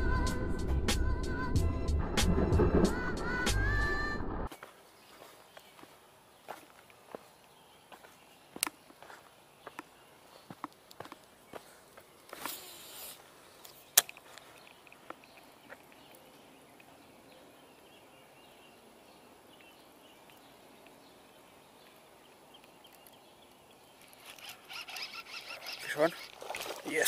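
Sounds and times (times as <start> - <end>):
faint outdoor background: 0.0 - 27.0
fishing reel hiss: 12.3 - 13.7
fishing reel clicks: 24.1 - 26.4.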